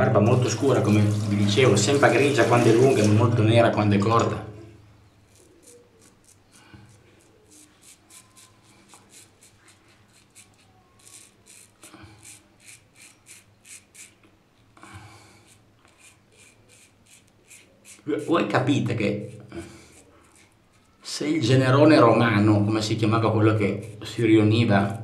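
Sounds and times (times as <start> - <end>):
razor scraping stubble: 5.2 - 22.1, 22.8 - 25.0.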